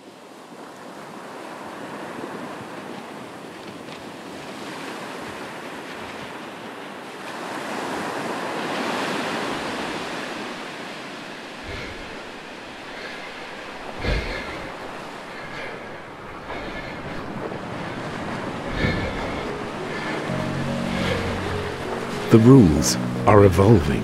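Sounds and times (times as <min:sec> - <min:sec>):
steady rushing noise: 0:11.6 - 0:23.2.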